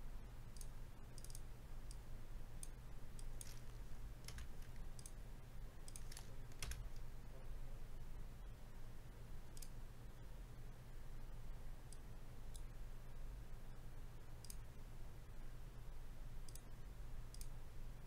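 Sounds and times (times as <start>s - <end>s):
low steady hum: 0.0s - 18.0s
mouse and keyboard clicks: 2.6s - 5.2s, 5.9s - 7.0s.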